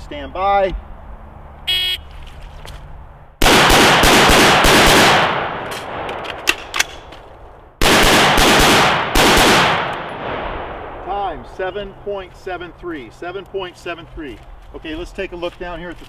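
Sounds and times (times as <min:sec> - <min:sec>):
rifle shots: 0:03.4 - 0:07.1, 0:07.8 - 0:11.0.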